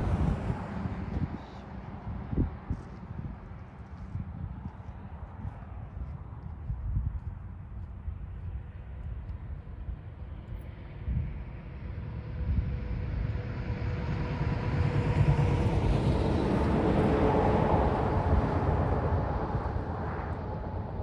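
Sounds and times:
truck driving past: 11.6 - 21.0.

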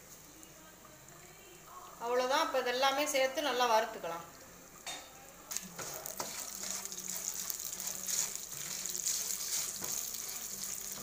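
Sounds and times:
spices sizzling in hot oil: 3.9 - 11.0
wooden spatula scraping pan: 5.8 - 11.0.

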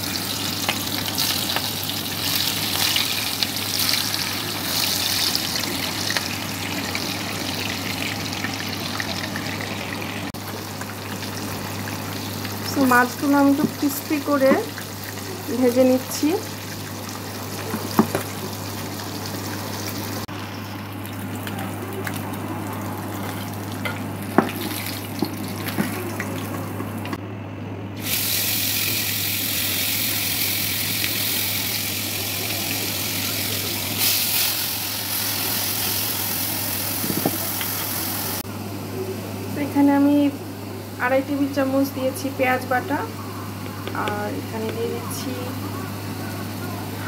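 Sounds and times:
oil sizzling in a pan: 0.0 - 27.2, 28.0 - 38.4.

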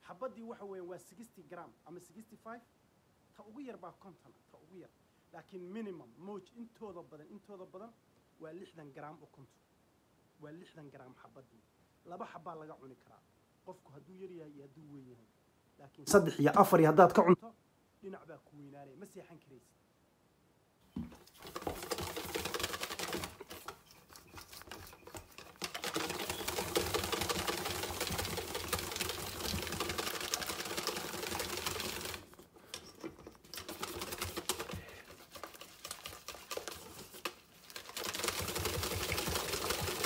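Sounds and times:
wire whisk rattling in metal bowl: 21.1 - 40.0.

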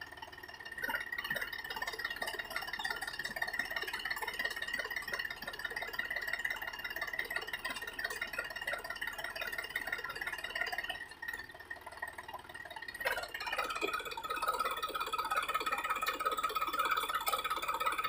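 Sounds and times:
tractor engine straining: 0.0 - 18.0.

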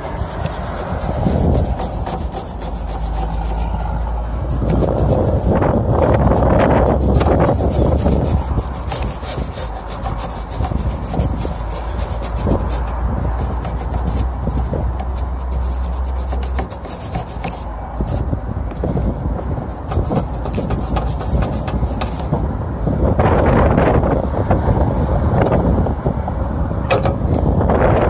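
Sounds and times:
wire brush scrubbing copper pipe: 0.0 - 18.2, 19.4 - 22.4.

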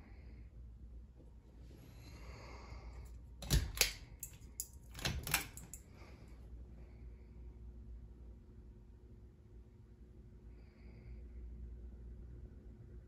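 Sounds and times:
pull-chain switch click: 3.4 - 5.8.

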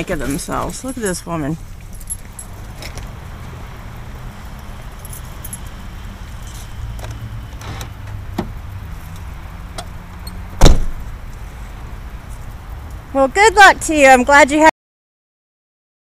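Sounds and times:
car door slamming: 7.0 - 8.6, 10.6 - 11.1
car door handle clicks and rattles: 10.6 - 11.0.

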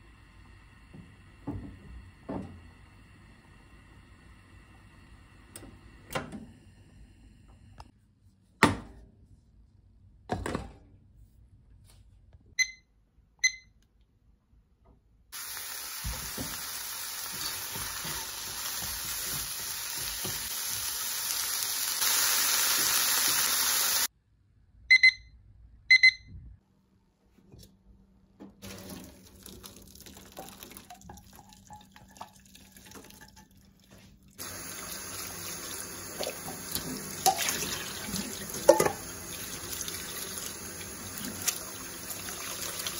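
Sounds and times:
running tap water: 15.4 - 24.1, 28.6 - 33.8, 34.4 - 42.9
vegetables sizzling in a frying pan: 15.4 - 24.1, 34.4 - 37.4
short electronic beeps: 24.9 - 26.4.

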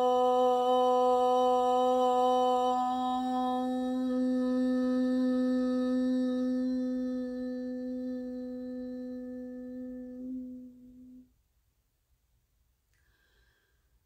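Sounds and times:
woman chanting om: 0.0 - 11.3.

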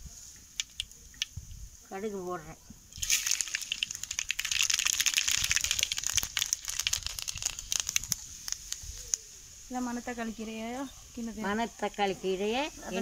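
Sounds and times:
seeds popping in hot oil: 0.1 - 1.6, 2.9 - 10.0.

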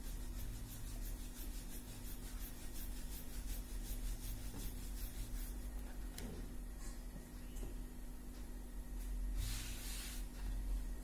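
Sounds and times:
rolling pin rolling dough: 0.0 - 6.0
low steady hum: 0.0 - 11.0.

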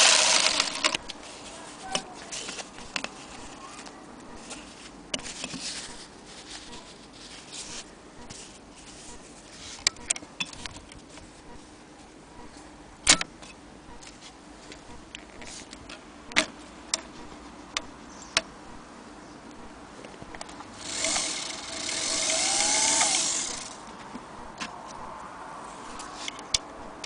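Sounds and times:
sewing machine motor whirring: 0.0 - 1.0, 20.8 - 23.8
metal parts clicking and knocking: 0.0 - 1.2, 20.3 - 23.8.

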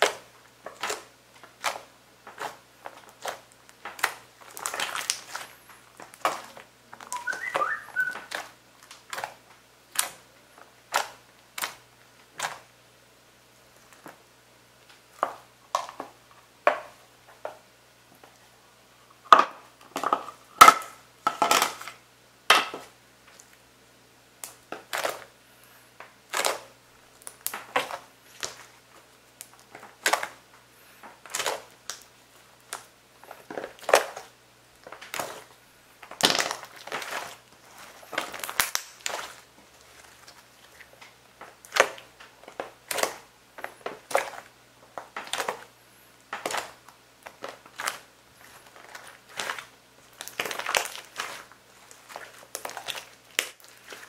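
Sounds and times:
wet slime squelches and crackles: 0.0 - 12.8, 13.5 - 17.0, 22.8 - 54.0.

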